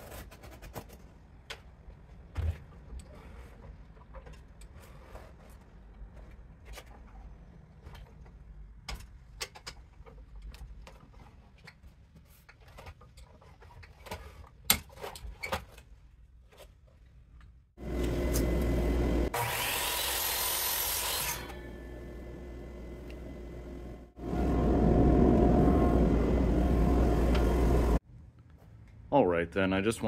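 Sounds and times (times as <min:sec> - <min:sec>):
chop saw motor running: 0:17.8 - 0:27.9
saw blade cutting wood: 0:18.0 - 0:22.6.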